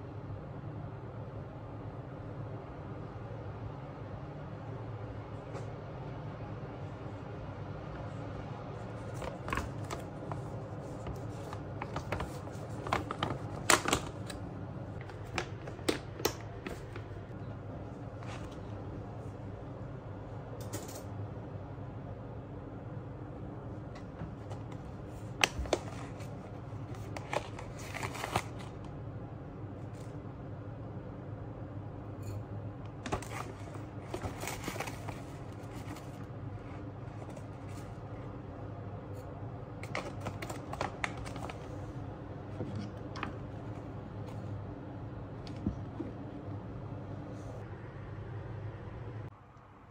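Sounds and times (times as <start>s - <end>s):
faint low hum: 0.0s - 49.9s.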